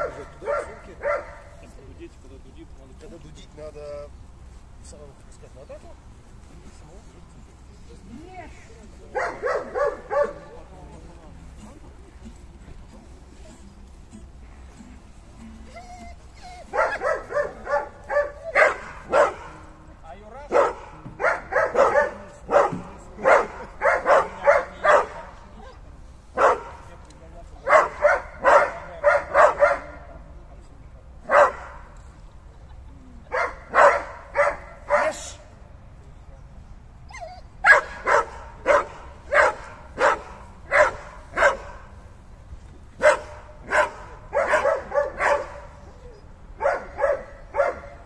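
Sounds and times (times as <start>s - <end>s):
dog barking: 0.0s - 1.6s, 9.1s - 10.6s, 16.6s - 19.7s, 20.5s - 25.4s, 26.4s - 26.9s, 27.6s - 30.1s, 31.2s - 31.9s, 33.3s - 35.3s, 37.6s - 42.0s, 43.0s - 48.0s.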